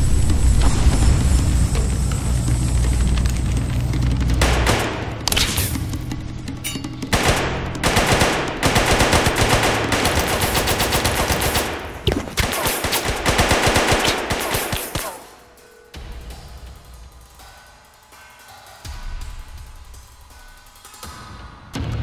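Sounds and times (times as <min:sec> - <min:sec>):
automatic rifle fire: 0:07.1 - 0:15.2.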